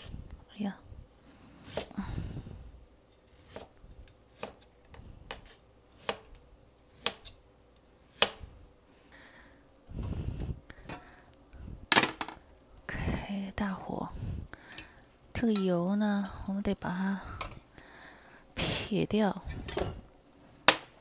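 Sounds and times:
handling noise: 0:11.8 - 0:12.5.

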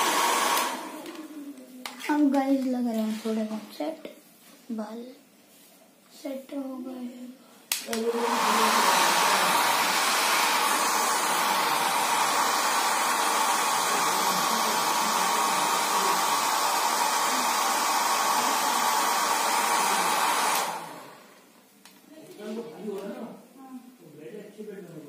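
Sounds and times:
hair dryer switching off: 0:00.0 - 0:01.2, 0:07.7 - 0:21.5
hair dryer running: 0:00.0 - 0:01.3, 0:07.7 - 0:21.5.

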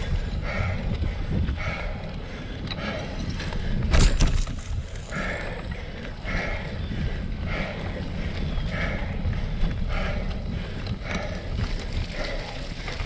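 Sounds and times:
person breathing hard: 0:00.0 - 0:13.0
wind rumbling on microphone: 0:00.0 - 0:13.0.

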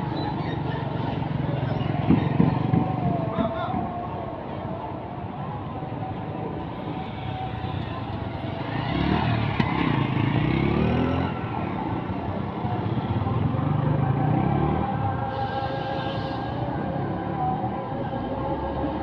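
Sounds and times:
bus engines running: 0:00.0 - 0:19.0
motor scooters accelerating past: 0:08.2 - 0:15.3.

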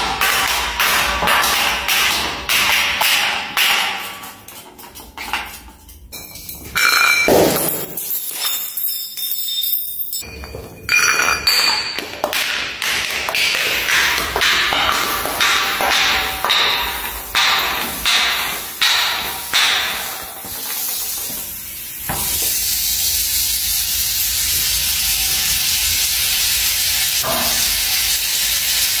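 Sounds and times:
glass bottle knocking down stairs: 0:00.0 - 0:21.1.

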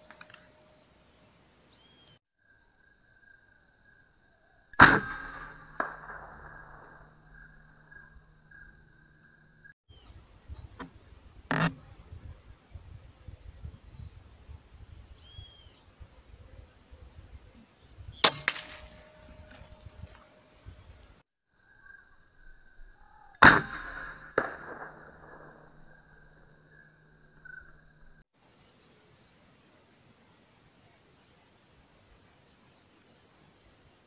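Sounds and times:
insects buzzing: 0:00.0 - 0:04.7, 0:07.1 - 0:23.3, 0:25.9 - 0:34.0
rifle shots: 0:18.2 - 0:19.9.

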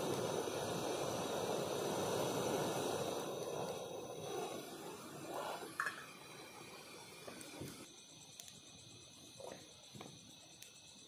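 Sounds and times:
gas stove burner rushing: 0:00.0 - 0:07.9
crickets chirping: 0:00.0 - 0:11.0.

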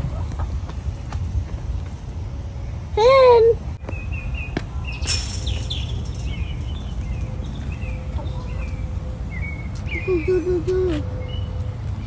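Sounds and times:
birds chirping: 0:03.8 - 0:12.0.

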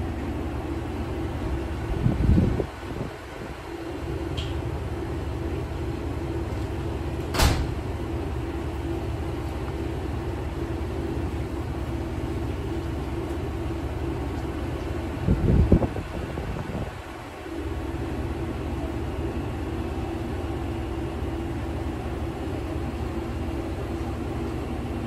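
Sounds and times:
diesel engine rumbling: 0:00.0 - 0:25.0.

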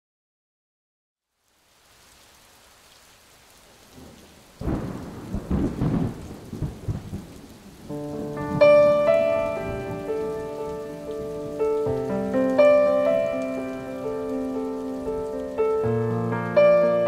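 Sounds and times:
rain hiss: 0:01.2 - 0:17.0
rolling thunderclap: 0:04.0 - 0:14.0.

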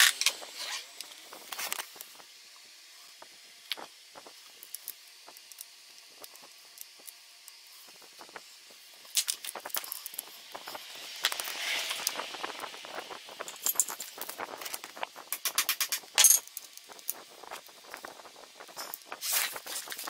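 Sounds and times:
metal clicks of hand tools: 0:15.3 - 0:16.4
rustling: 0:17.4 - 0:20.0.

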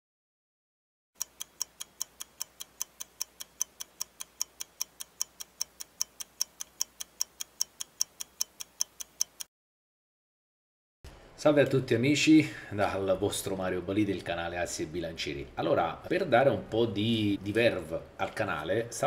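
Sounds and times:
mechanical watch ticking: 0:01.2 - 0:09.5.

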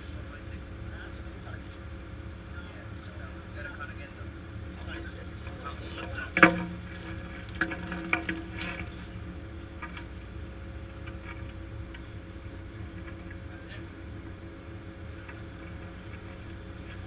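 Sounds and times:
low machinery hum: 0:00.0 - 0:17.0
steel chain links clinking: 0:04.8 - 0:09.3.

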